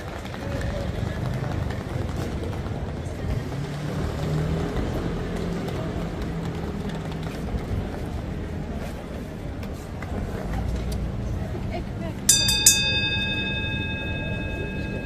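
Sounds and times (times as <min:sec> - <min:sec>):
murmur of passers-by: 0:00.0 - 0:15.0.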